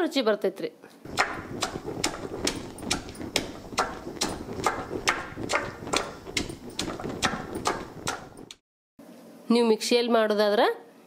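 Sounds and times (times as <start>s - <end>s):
pestle pounding in stone mortar: 1.1s - 8.6s.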